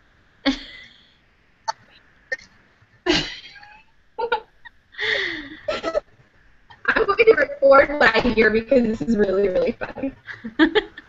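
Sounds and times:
women giggling: 0.5 - 0.9, 3.1 - 6.0, 9.7 - 11.0.

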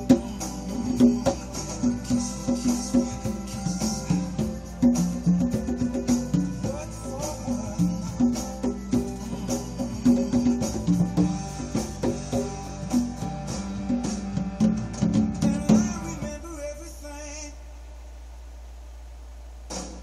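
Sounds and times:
person singing: 0.0 - 12.7, 15.3 - 17.6
conga drums played by hand: 0.0 - 16.4
guitar: 0.0 - 17.5
low steady hum: 0.0 - 20.0.

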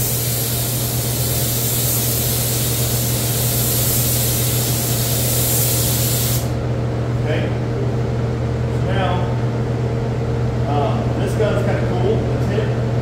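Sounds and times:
air spray gun hissing: 0.0 - 6.6.

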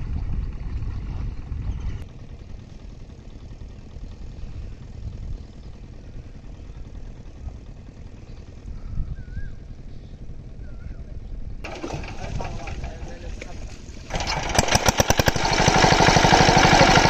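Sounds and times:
distant small engine humming: 0.2 - 17.0.

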